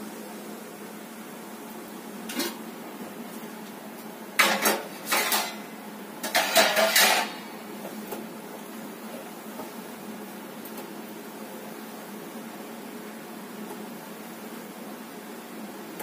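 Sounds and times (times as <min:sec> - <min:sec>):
steel utensils clattering: 0:04.4 - 0:05.6, 0:06.2 - 0:07.4.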